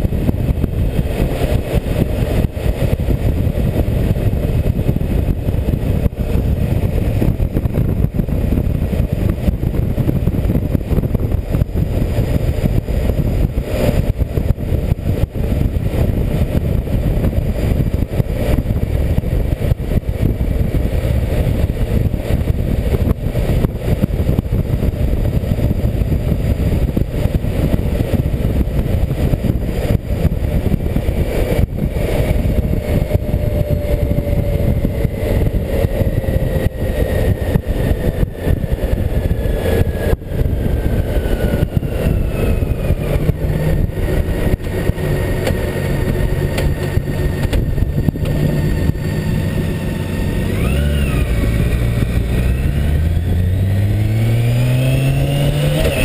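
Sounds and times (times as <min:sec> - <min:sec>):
heavy wind buffeting microphone: 0:00.0 - 0:56.0
motorcycle engine running: 0:00.0 - 0:56.0.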